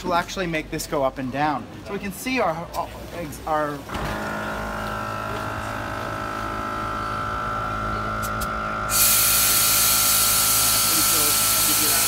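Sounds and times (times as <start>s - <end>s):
air compressor humming: 3.6s - 12.0s
air hissing: 8.2s - 12.0s.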